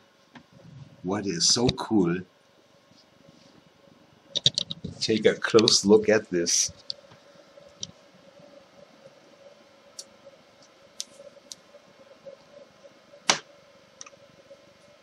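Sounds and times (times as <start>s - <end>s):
faint steady hum: 0.0s - 15.0s
sheet snapping onto magnetic base: 13.3s - 13.5s.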